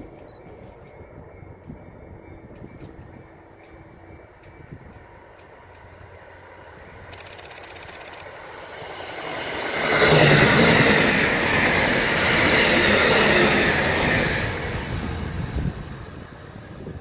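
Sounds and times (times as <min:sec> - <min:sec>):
electric train passing at speed: 0:00.0 - 0:17.0.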